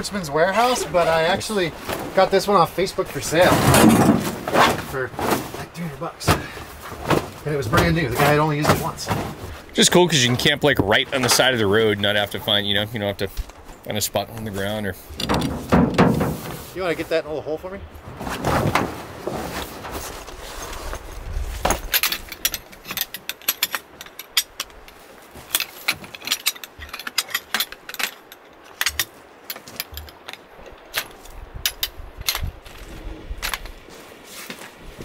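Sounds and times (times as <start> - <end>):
folding chair metal clicks and rattles: 15.2 - 16.7, 21.6 - 33.8.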